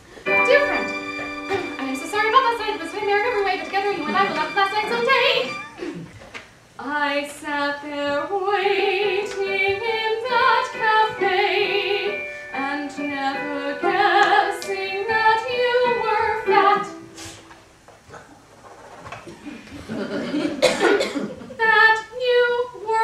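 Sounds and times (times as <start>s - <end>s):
woman singing soprano: 1.8s - 5.6s, 6.8s - 17.2s, 21.6s - 23.0s.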